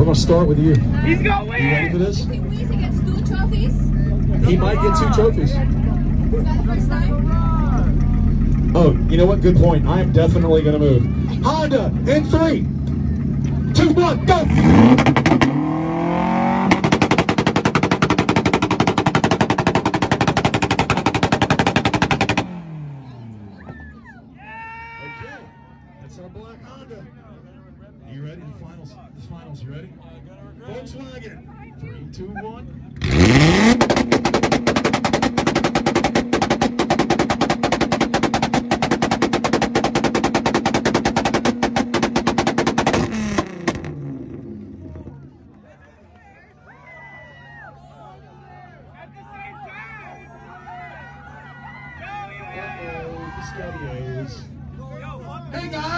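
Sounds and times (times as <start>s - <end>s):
car engine revving: 0.0s - 24.0s, 31.8s - 45.6s.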